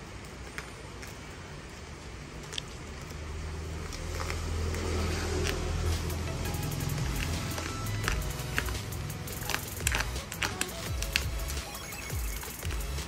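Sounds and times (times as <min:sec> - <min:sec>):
cutter slitting plastic wrap: 0:06.8 - 0:11.5.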